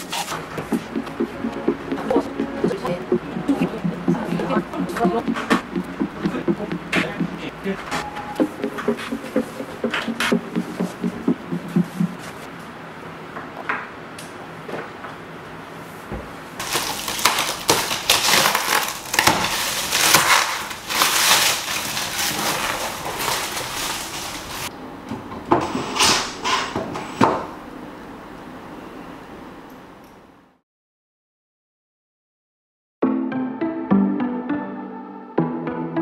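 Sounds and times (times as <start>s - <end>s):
plastic wrapping crackling: 16.6s - 24.7s.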